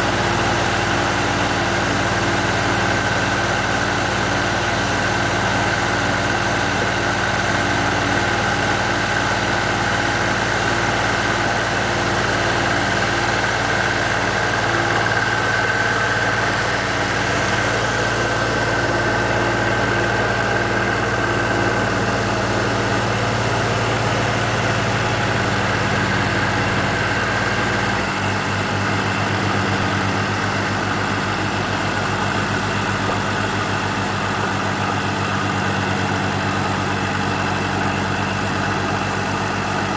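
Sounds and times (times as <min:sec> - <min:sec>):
tractor diesel engine running: 0:00.0 - 0:39.9
steady high whine: 0:13.3 - 0:33.9.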